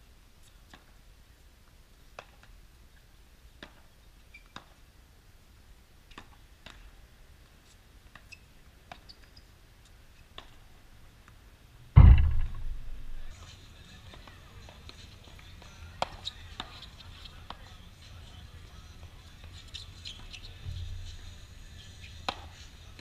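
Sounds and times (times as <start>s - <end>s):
ball bouncing on hard court: 12.0s - 13.3s
loud deep burst of noise: 12.0s - 13.3s.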